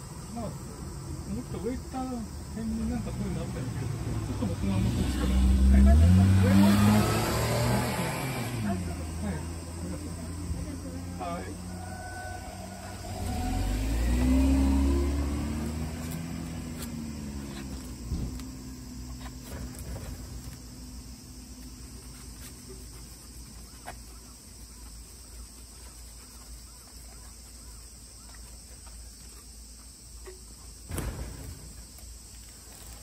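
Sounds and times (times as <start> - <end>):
vehicle driving past: 3.1 - 20.9.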